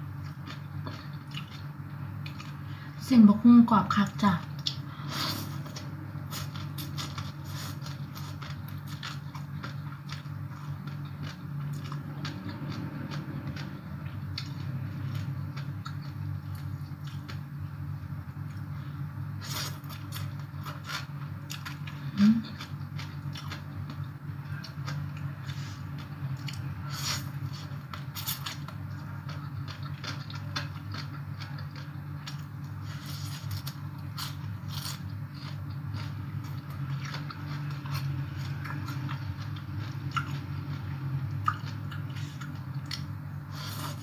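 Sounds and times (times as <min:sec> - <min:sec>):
low hum: 0:00.0 - 0:44.0
crunchy salad chewing: 0:00.1 - 0:02.6, 0:04.6 - 0:17.7, 0:19.4 - 0:44.0
person humming mm: 0:22.1 - 0:22.6.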